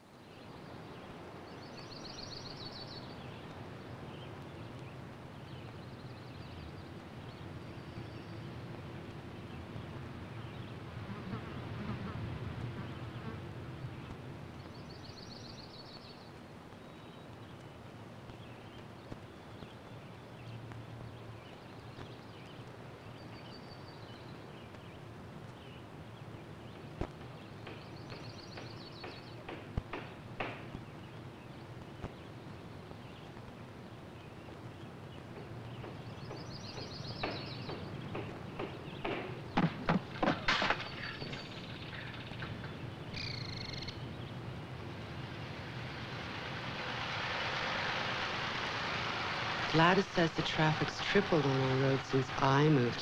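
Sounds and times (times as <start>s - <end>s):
steady hiss: 0.0s - 53.0s
low hum: 40.7s - 53.0s
high bird trill: 40.8s - 44.4s.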